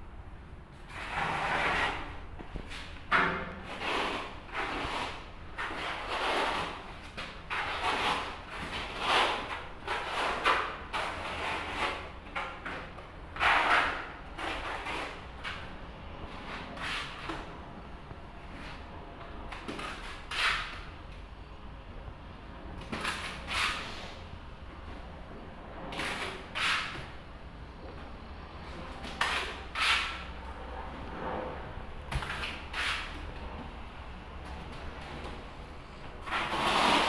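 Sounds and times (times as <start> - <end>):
trowel scraping tile adhesive: 0.9 - 2.9, 3.7 - 6.8, 7.5 - 12.8, 13.4 - 15.6, 19.6 - 20.9, 26.0 - 27.1, 29.0 - 30.3, 32.3 - 33.2, 36.2 - 37.0.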